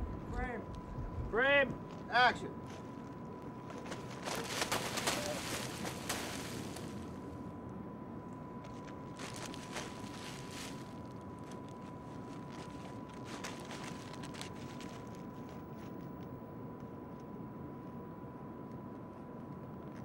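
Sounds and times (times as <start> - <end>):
outdoor rumble and hiss: 0.0 - 20.0
thin high whine: 0.0 - 20.0
soft crunches and clicks: 8.6 - 16.3.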